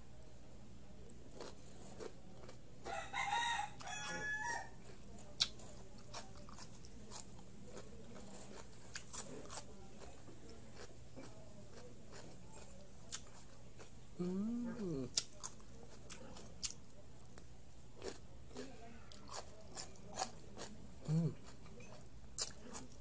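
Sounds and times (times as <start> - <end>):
crunching of cucumber being chewed: 1.3 - 17.4, 18.0 - 23.0
rooster crowing: 2.8 - 4.8.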